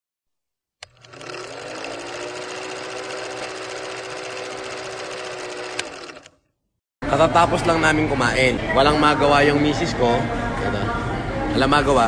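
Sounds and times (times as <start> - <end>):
film projector clatter: 0.8 - 6.4.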